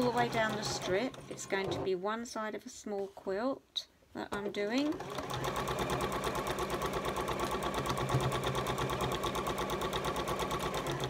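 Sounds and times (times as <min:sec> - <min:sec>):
sewing machine motor hum: 0:00.0 - 0:01.8, 0:04.9 - 0:11.0
sewing machine needle ticking: 0:04.8 - 0:11.0.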